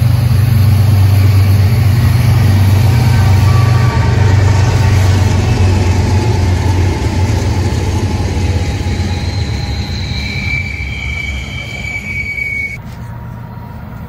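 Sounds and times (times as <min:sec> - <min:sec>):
steel wheel squeal: 0:00.0 - 0:05.9, 0:08.4 - 0:12.9
freight train rumbling: 0:00.0 - 0:14.0.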